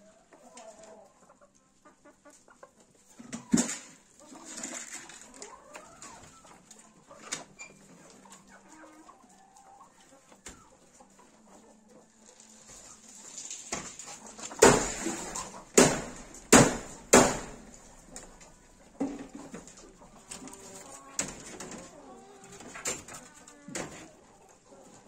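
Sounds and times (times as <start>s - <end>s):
rabbits thumping in wooden hutch: 3.2s - 5.2s, 13.6s - 24.2s.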